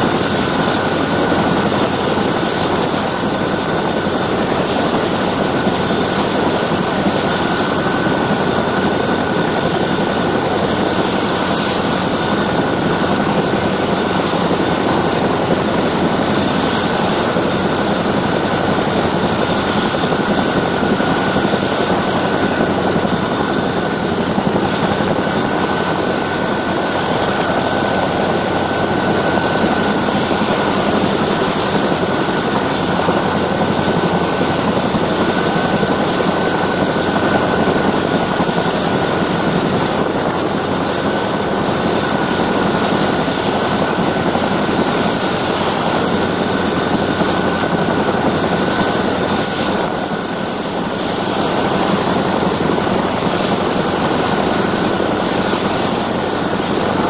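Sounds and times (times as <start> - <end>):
high whine: 0.0 - 40.4
helicopter rotor noise: 0.0 - 57.0.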